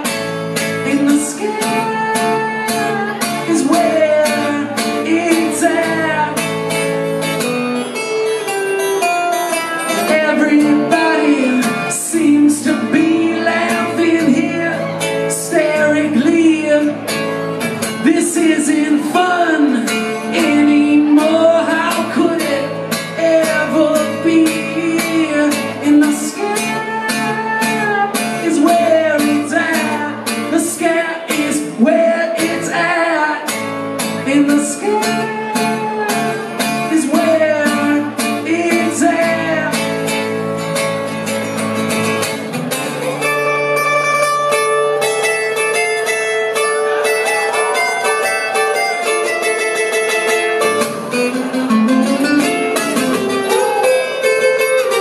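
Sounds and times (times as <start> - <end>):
man singing: 0.0 - 7.0, 9.3 - 40.5
strummed acoustic guitar: 0.0 - 55.0.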